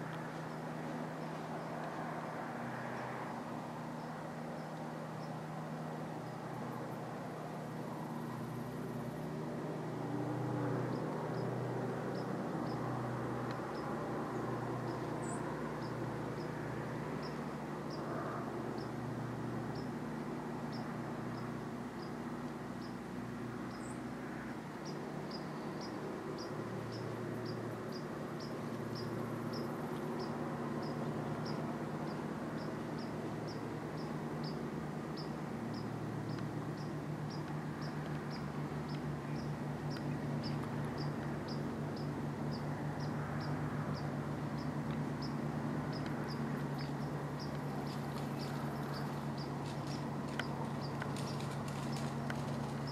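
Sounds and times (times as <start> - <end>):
cricket chirping: 10.9 - 23.0, 24.8 - 52.9.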